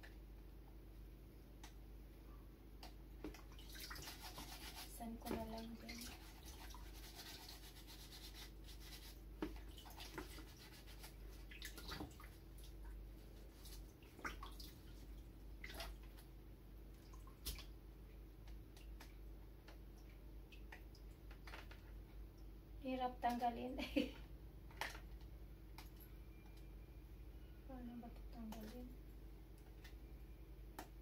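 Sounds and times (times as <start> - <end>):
sponge scrubbing plastic part: 3.9 - 11.2.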